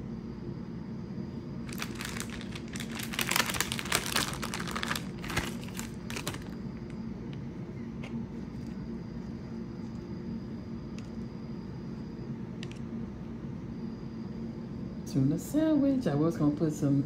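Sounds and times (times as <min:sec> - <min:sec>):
steady low hum: 0:00.0 - 0:17.0
plastic packaging crinkling: 0:01.6 - 0:06.6.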